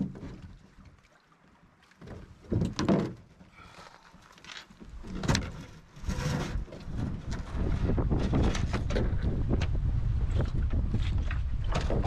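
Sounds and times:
canoe hull knocking and scraping: 0:00.0 - 0:01.0, 0:01.8 - 0:12.0
water sloshing: 0:00.0 - 0:09.4.

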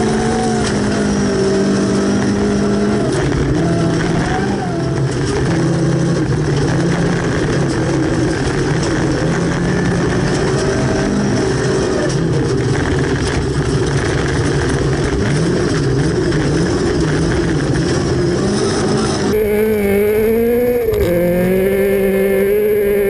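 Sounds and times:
car engine running hard: 0:00.0 - 0:23.0.

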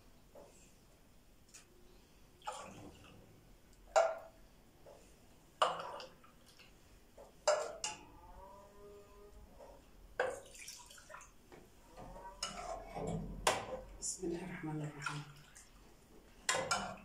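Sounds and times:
milk splashing into clay pots: 0:10.2 - 0:12.8, 0:14.8 - 0:17.0.

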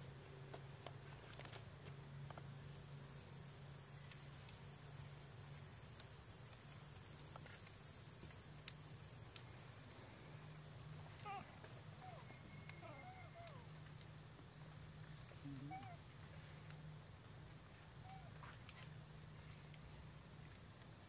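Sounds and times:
low outdoor hum: 0:00.0 - 0:21.0
young monkeys squeaking: 0:11.2 - 0:14.0, 0:15.2 - 0:16.3.

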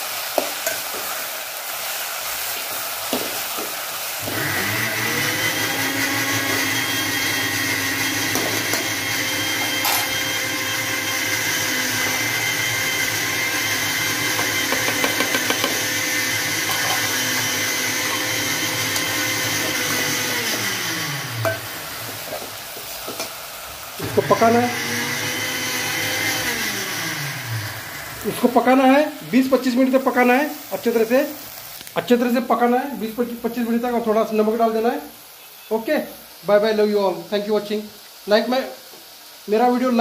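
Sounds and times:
small electric motor whining: 0:04.2 - 0:21.9, 0:24.0 - 0:28.3.

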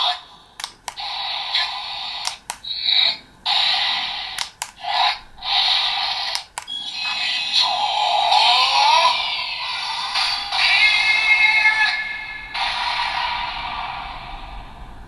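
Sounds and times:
sharp clicks: 0:00.6 - 0:02.8, 0:04.3 - 0:04.8, 0:06.3 - 0:06.8.

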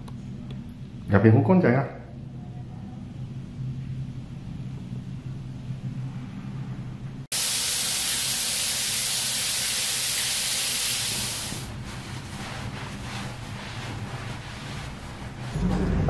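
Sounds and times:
low steady hum: 0:00.0 - 0:07.3, 0:11.7 - 0:16.0
shower spray hissing: 0:07.3 - 0:11.8
towel rubbing: 0:10.1 - 0:15.7.

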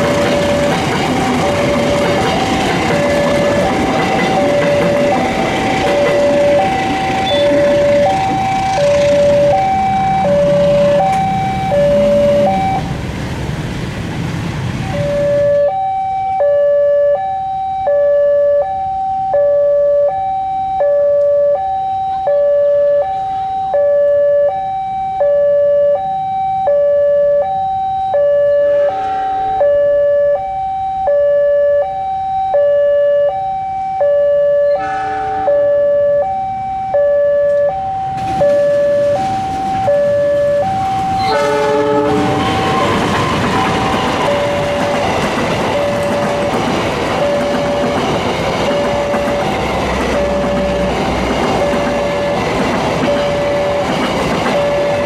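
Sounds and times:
single-tone crossing alarm beeps: 0:00.0 - 0:12.9, 0:14.8 - 0:55.0
two-tone crossing alarm: 0:00.0 - 0:12.9, 0:14.8 - 0:55.0
train wheels rumbling and clacking: 0:00.0 - 0:15.7, 0:37.5 - 0:55.0
locomotive horn blasts: 0:01.3 - 0:12.8, 0:28.3 - 0:30.5, 0:34.3 - 0:36.4, 0:39.7 - 0:44.8.

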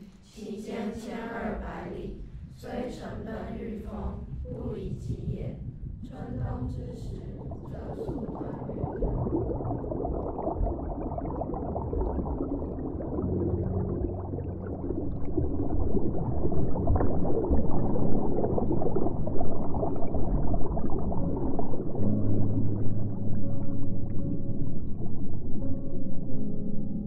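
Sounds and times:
low hum: 0:02.1 - 0:27.0
underwater bubbling and rushing water: 0:04.0 - 0:27.0.

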